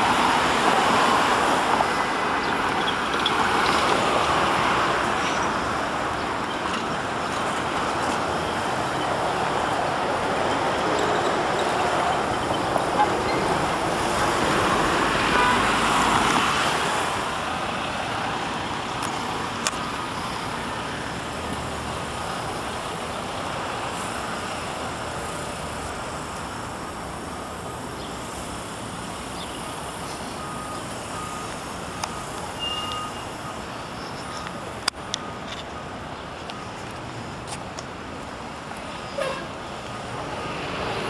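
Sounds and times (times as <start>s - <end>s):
road noise: 0.0s - 41.0s
vehicle passing: 40.0s - 41.0s.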